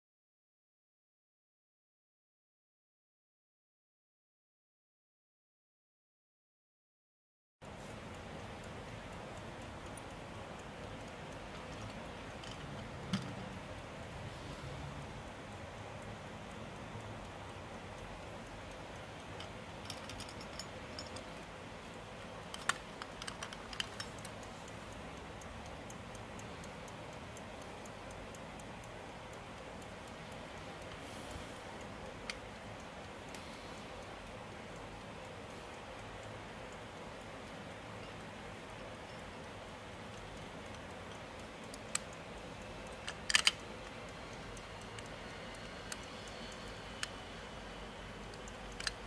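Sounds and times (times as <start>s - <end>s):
clock ticking fast: 7.6s - 49.0s
faint steady hiss: 7.6s - 49.0s
alarm clock clicks and taps: 22.5s - 24.6s, 39.1s - 49.0s
louder clock clicks: 43.0s - 44.0s.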